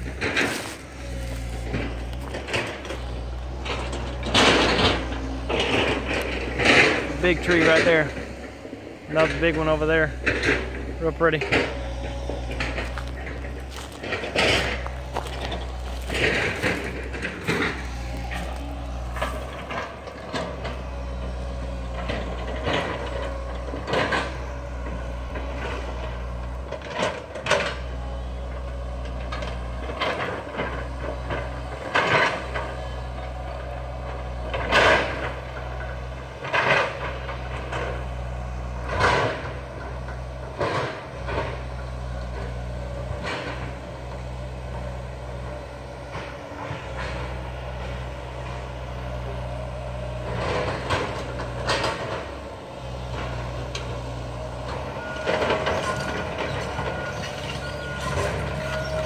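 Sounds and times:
distant heavy diesel engines running: 0:00.0 - 0:59.0
machine clanks and knocks: 0:01.4 - 0:32.9.

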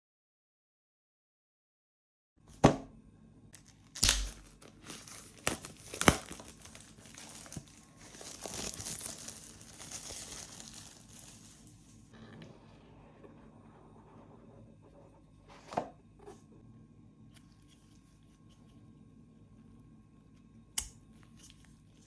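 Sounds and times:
packaging crinkling and tearing: 0:03.6 - 0:12.0.

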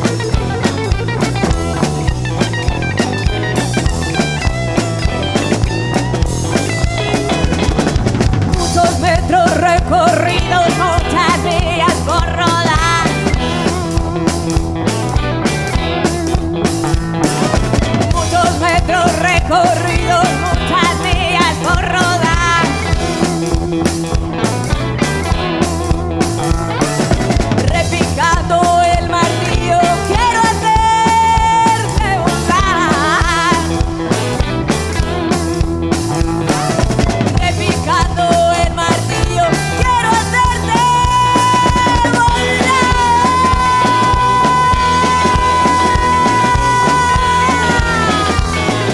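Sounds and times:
rock band playing: 0:00.0 - 0:48.9
woman singing with vibrato: 0:08.6 - 0:13.7, 0:18.1 - 0:23.0, 0:27.6 - 0:33.9, 0:37.4 - 0:48.9.

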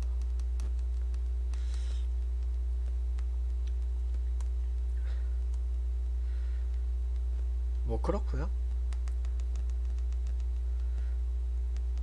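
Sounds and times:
low electrical hum: 0:00.0 - 0:12.0
short hiss: 0:01.5 - 0:02.1
faint clicks: 0:08.6 - 0:11.1.

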